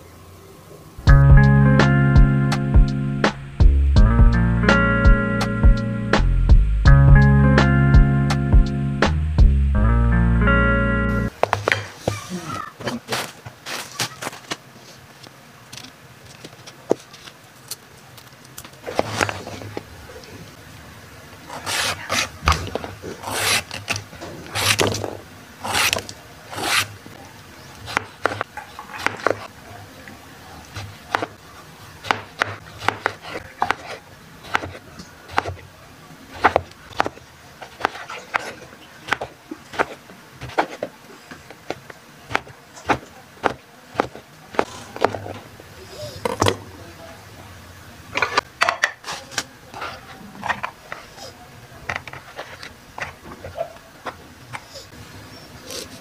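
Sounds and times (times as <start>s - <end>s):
knife chopping on wooden board: 25.6s - 26.0s, 27.9s - 29.5s, 30.7s - 31.4s, 32.0s - 35.6s, 36.4s - 40.9s, 41.7s - 45.3s.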